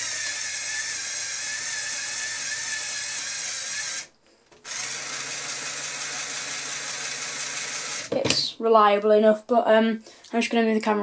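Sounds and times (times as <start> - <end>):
toy motor and gears whirring: 0.0 - 8.1.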